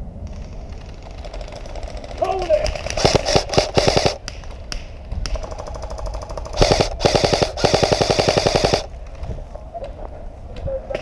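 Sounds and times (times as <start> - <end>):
airsoft rifle bursts: 0.4 - 4.4, 5.3 - 8.9.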